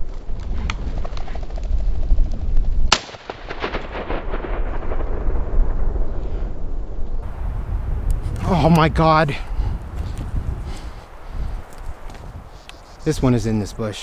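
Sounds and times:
wind rumbling on microphone: 0.0 - 3.0, 3.6 - 14.0
shotgun shot: 2.9 - 6.6.

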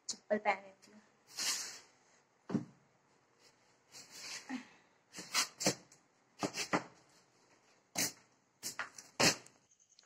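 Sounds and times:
footsteps in flip-flops: 5.2 - 9.5.

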